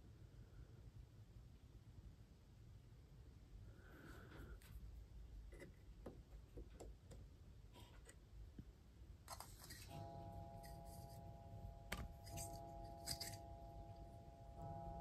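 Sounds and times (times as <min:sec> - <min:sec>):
faint steady tone: 0:09.3 - 0:15.0.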